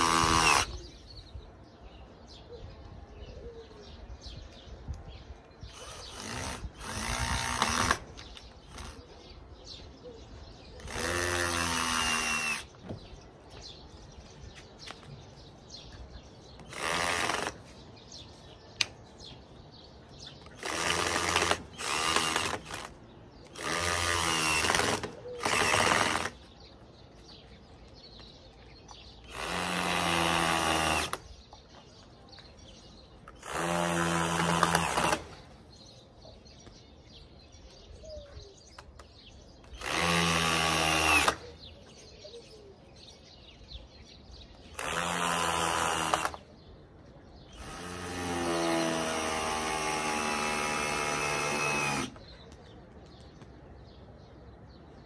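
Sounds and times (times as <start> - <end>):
cordless drill driving into wood: 0.0 - 0.8, 5.7 - 9.0, 10.8 - 13.1, 16.6 - 17.7, 20.4 - 26.5, 29.2 - 31.3, 33.3 - 35.5, 39.6 - 41.5, 44.7 - 46.5, 47.5 - 52.3.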